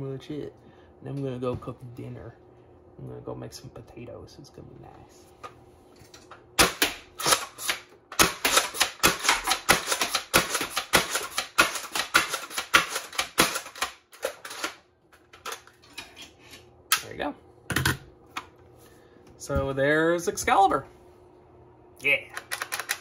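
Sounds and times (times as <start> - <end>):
toy blaster plastic clacks: 22.3 - 23.0.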